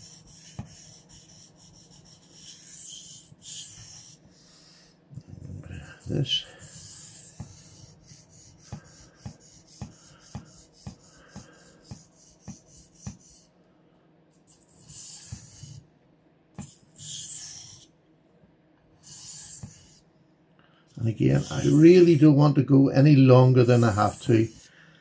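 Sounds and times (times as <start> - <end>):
knife scraping on whetstone: 16.6 - 17.9.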